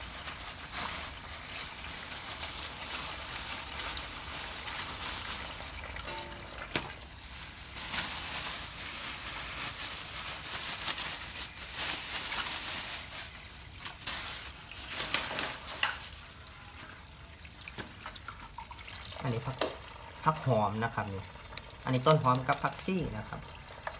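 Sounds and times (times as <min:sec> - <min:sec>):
leaves and stalks rustling: 0:00.0 - 0:16.6.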